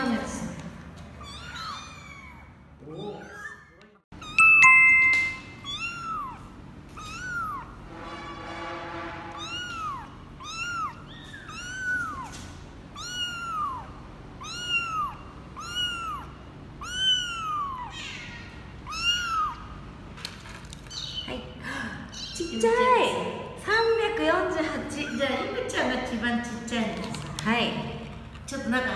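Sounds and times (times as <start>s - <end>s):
kitten mewing: 5.6s - 7.8s, 9.4s - 19.8s, 22.1s - 22.8s.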